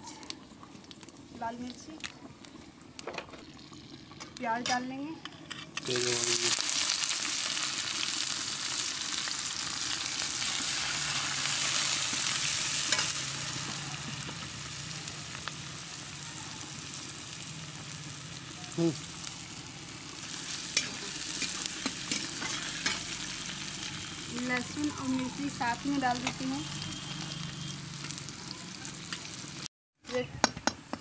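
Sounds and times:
onion sizzling in hot oil: 0.0s - 31.0s
metal spatula scraping a pan: 4.6s - 6.1s, 20.7s - 23.2s.

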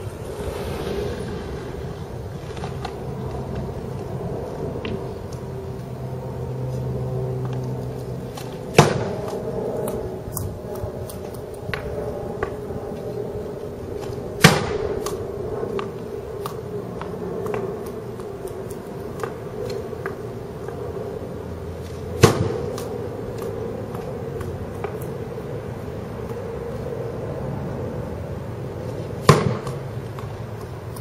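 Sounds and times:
background hum: 0.0s - 31.0s
hockey stick slap shots: 29.2s - 29.8s.

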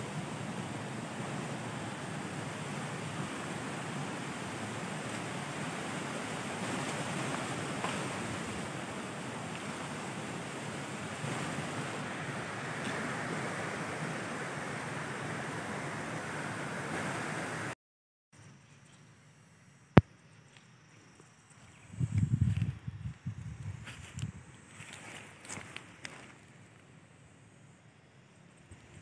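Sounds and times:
rushing wind: 0.0s - 17.7s, 21.8s - 26.0s.

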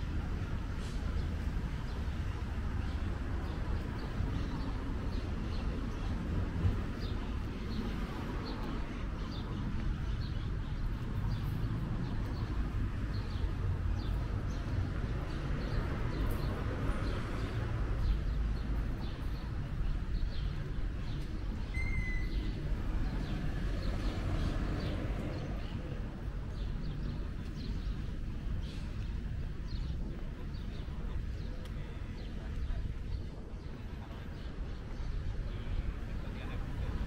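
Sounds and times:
traffic hum: 0.0s - 37.0s.

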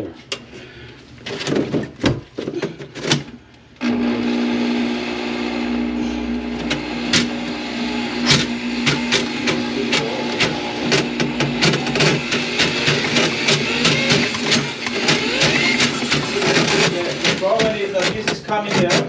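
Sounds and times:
drain-cleaning machine motor hum: 3.8s - 18.9s
knocks and clanks: 8.3s - 19.0s.

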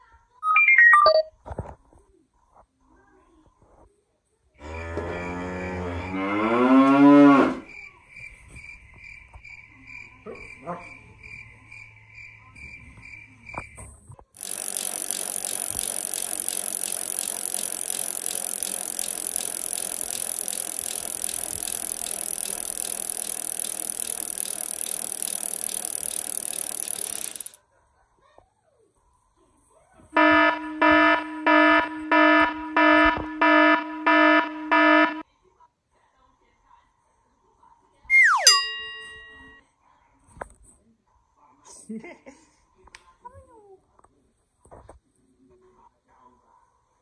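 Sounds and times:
pulsing high tone: 14.4s - 27.6s, 30.2s - 35.2s, 38.1s - 39.6s.

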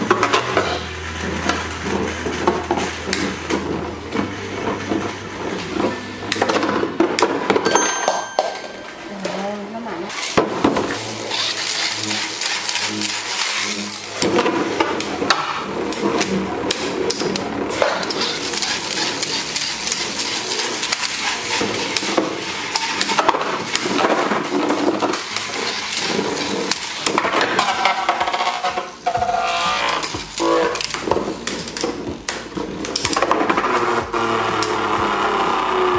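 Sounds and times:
metal tops clattering and clinking: 7.5s - 9.5s
spinning tops whirring: 10.0s - 35.9s.

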